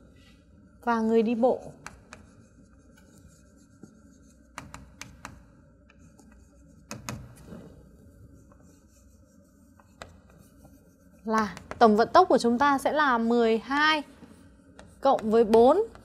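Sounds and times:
chalk scratching on chalkboard: 0:01.0 - 0:16.0
chalk tapping on board: 0:01.5 - 0:07.5, 0:08.4 - 0:12.3, 0:13.7 - 0:16.0.

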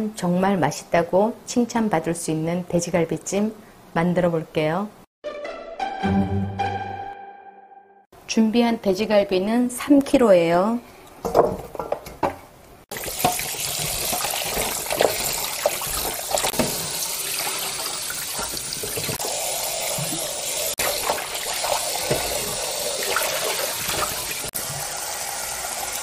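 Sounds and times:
tap water running into bowl: 0:12.9 - 0:26.0.

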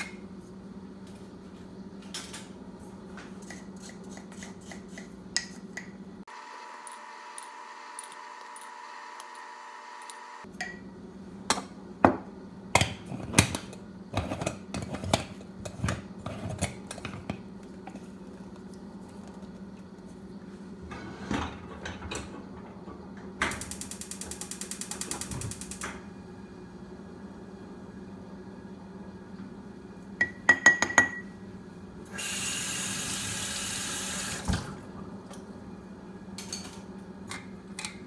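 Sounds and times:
mechanism ratchet clicks: 0:23.5 - 0:26.0.

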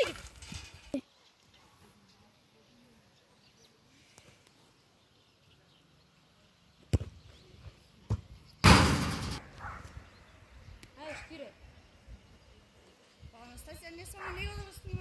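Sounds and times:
football kicked with a thud: 0:06.9 - 0:07.2, 0:08.1 - 0:09.2
loud rattling crash: 0:08.6 - 0:09.5.

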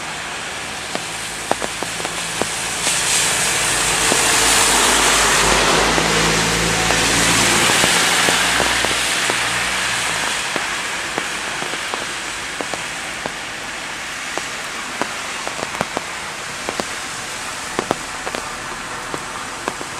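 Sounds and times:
steady rain: 0:00.0 - 0:19.9
tyre spray hissing through water: 0:00.1 - 0:19.9
single drops ticking close by: 0:01.0 - 0:03.0.

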